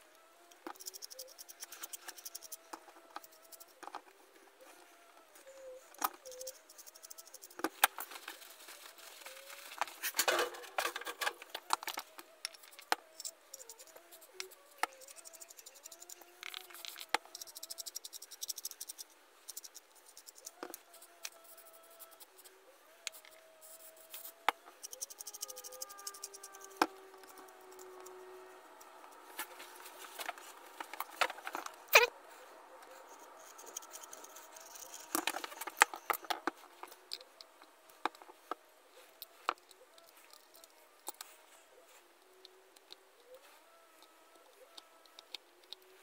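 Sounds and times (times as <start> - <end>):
metal clicks and scrapes of hand drill: 33.1 - 38.6.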